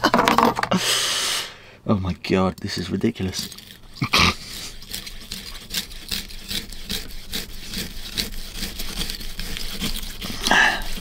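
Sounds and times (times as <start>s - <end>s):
knife sawing through frozen food: 3.2s - 11.0s.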